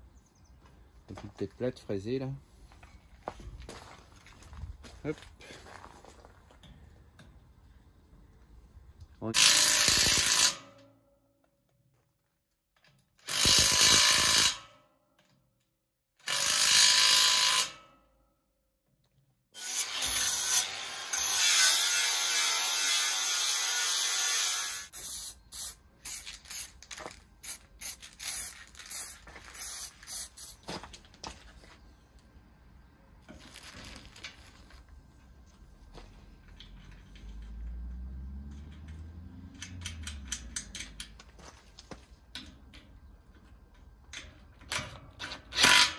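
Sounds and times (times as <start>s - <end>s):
angle grinder on steel: 9.4s - 10.6s, 16.2s - 17.8s, 19.6s - 25.0s
cordless drill driving bolts: 16.2s - 17.8s, 45.2s - 45.9s.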